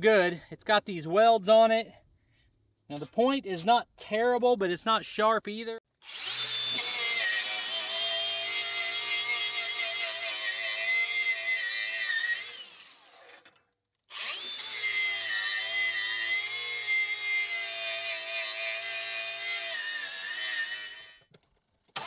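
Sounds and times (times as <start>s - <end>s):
angle grinder whining: 6.0s - 21.2s.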